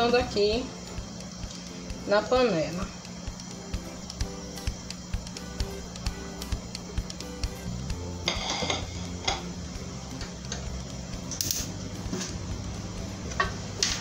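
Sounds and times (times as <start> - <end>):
gas stove clicks: 8.2 - 11.8, 13.3 - 14.0.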